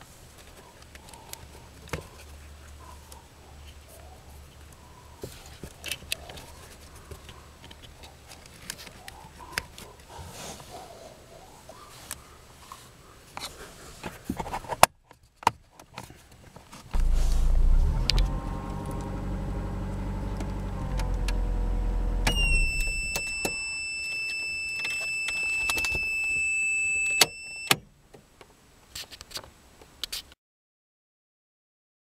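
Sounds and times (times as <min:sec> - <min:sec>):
car engine running: 0:17.0 - 0:23.3
high-pitched buzzer beep: 0:22.3 - 0:23.8.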